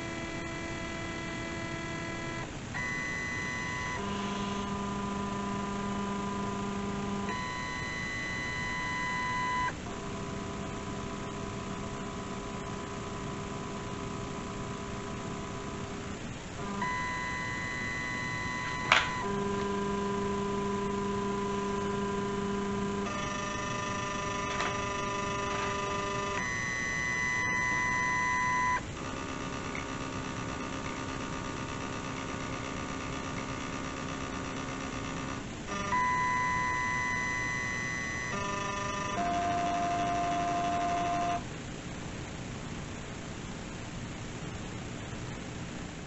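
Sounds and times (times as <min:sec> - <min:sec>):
stepper motors whining: 0:00.0 - 0:09.8, 0:16.6 - 0:41.4.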